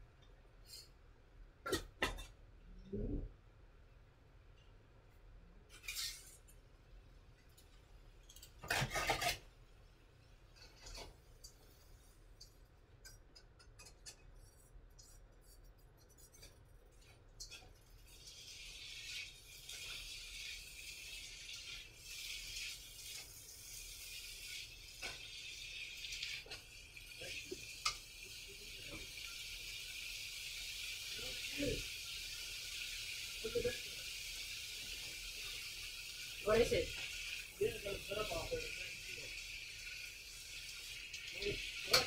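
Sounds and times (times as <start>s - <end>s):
food sizzling in a wok: 5.7s - 13.3s, 16.4s - 42.0s.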